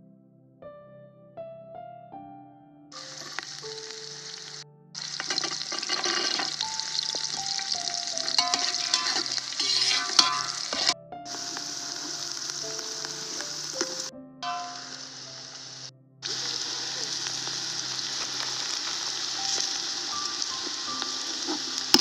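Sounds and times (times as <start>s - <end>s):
onions sizzling in a pot: 3.0s - 22.0s
ladle scraping a pot: 5.1s - 7.1s, 8.2s - 11.0s.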